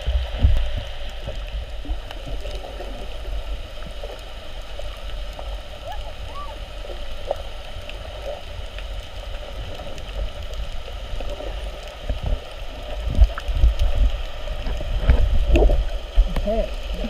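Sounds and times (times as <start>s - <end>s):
low thumps and sloshing: 0.0s - 3.1s, 12.0s - 17.0s
faint clicks and crackles: 0.0s - 17.0s
underwater water rumble: 0.0s - 17.0s.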